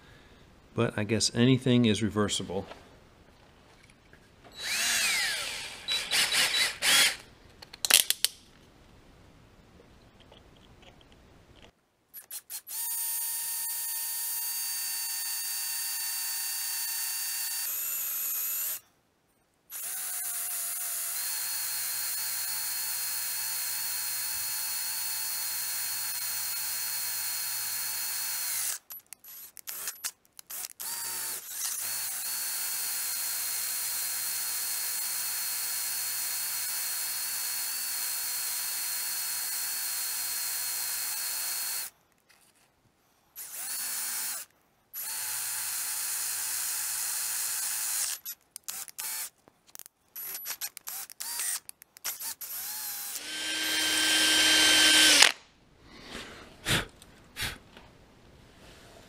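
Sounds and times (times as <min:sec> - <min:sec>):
drill drilling through metal: 0:04.6 - 0:07.2, 0:12.2 - 0:18.8, 0:19.7 - 0:41.9, 0:43.4 - 0:44.4, 0:45.0 - 0:49.3, 0:50.2 - 0:55.4.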